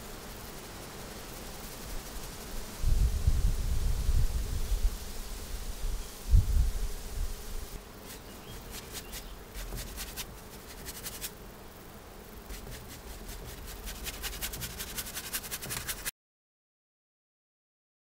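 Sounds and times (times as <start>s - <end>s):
wind rumble on microphone: 2.8s - 7.5s
paintbrush ticking on canvas: 8.1s - 11.3s, 12.5s - 16.1s.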